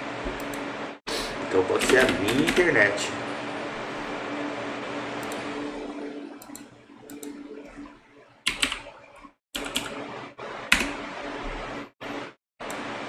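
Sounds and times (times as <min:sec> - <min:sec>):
computer keyboard typing: 0:01.8 - 0:02.8, 0:08.5 - 0:08.9, 0:09.6 - 0:10.0, 0:10.7 - 0:11.0.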